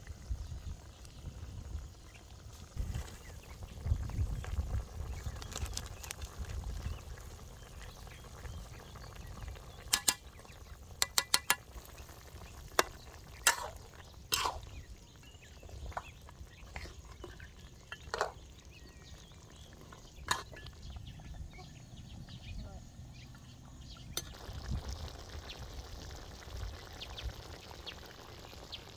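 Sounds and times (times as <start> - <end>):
metal utensils clinking on a wok: 9.9 - 10.2, 11.0 - 11.6.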